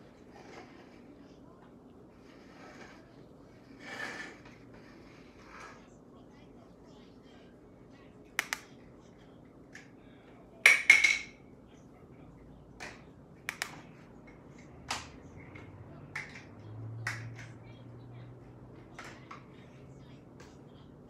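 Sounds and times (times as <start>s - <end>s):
makeup tools tapping and clicking: 8.4s - 8.7s, 13.5s - 13.8s.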